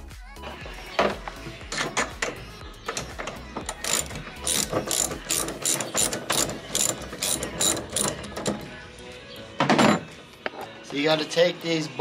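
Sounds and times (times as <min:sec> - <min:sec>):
ratchet wrench clicking: 0:02.9 - 0:08.7.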